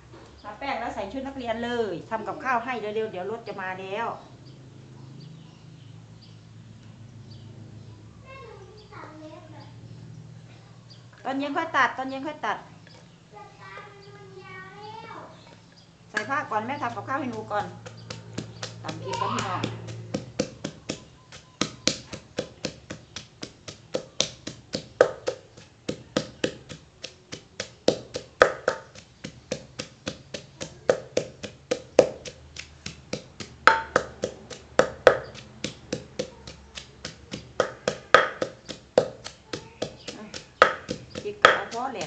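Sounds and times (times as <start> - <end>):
pestle pounding in clay mortar: 16.1 - 42.0.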